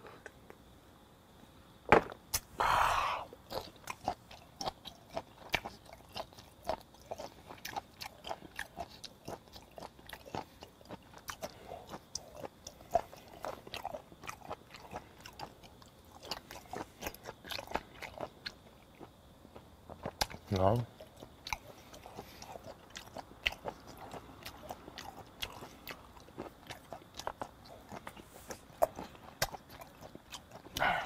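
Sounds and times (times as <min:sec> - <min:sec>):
breathy sound: 0:02.6 - 0:03.3, 0:30.8 - 0:31.0
wet chewing mouth clicks: 0:20.0 - 0:30.9.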